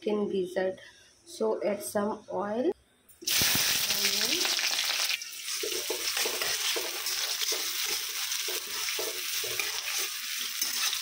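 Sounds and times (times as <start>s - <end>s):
onions sizzling in hot oil: 3.2s - 11.0s
spatula scraping a wok: 5.5s - 11.0s.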